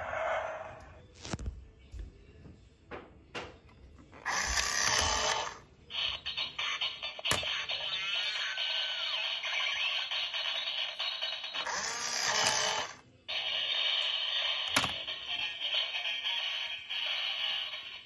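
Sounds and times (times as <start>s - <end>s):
tinny electronic toy sounds and music: 4.2s - 18.0s.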